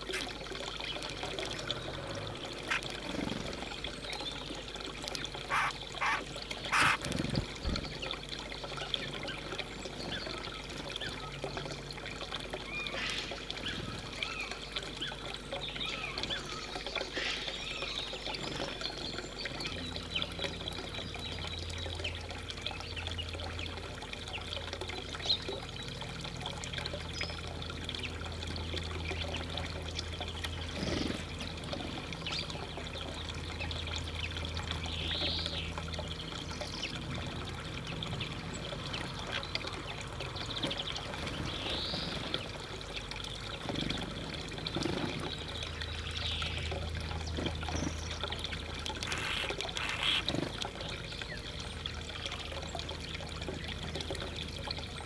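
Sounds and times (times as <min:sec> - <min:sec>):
water trickling: 0:00.0 - 0:55.0
small birds calling: 0:05.5 - 0:07.0, 0:49.0 - 0:50.5.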